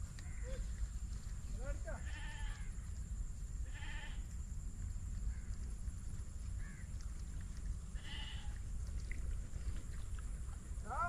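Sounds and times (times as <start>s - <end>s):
faint bird call: 0.2s - 0.8s.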